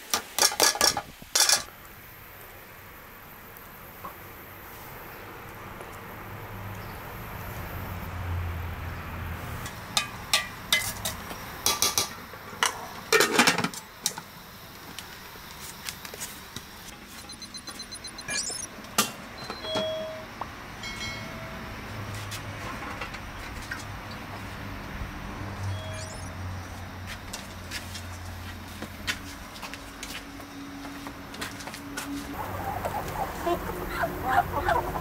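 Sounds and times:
steady background noise: 0:00.0 - 0:35.0
metal utensils and dishes clattering: 0:00.2 - 0:01.7, 0:13.2 - 0:13.8.

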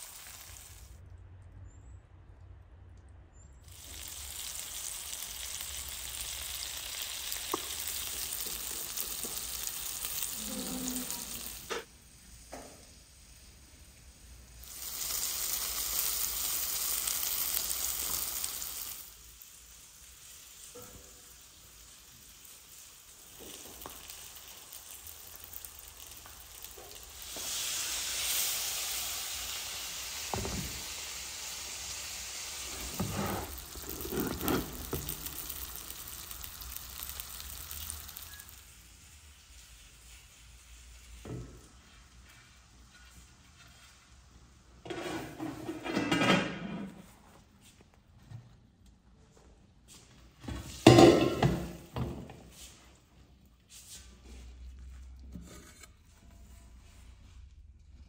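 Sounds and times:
fish sizzling in hot oil: 0:00.0 - 0:00.9, 0:03.7 - 0:44.0.

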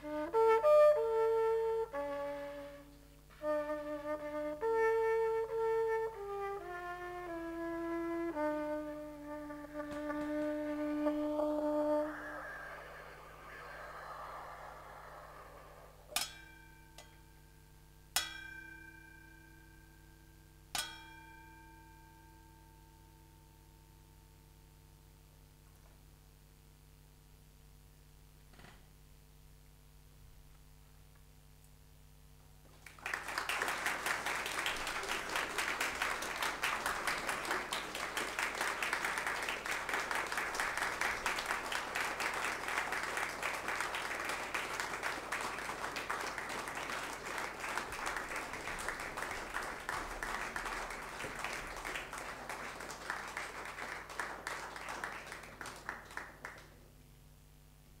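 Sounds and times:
audience applauding: 0:09.7 - 0:10.4, 0:11.1 - 0:16.1, 0:32.7 - 0:56.7.

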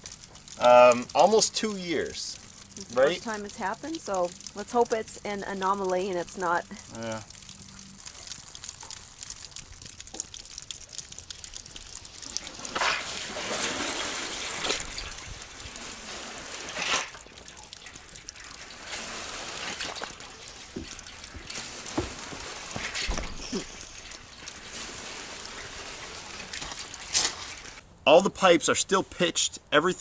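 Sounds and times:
water trickling through pipes: 0:00.0 - 0:30.0.

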